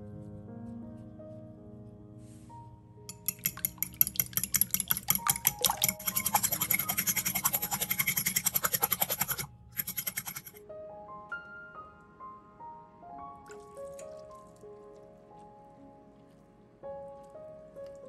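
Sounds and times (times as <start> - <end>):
fork whisking eggs in glass bowl: 3.1 - 10.6.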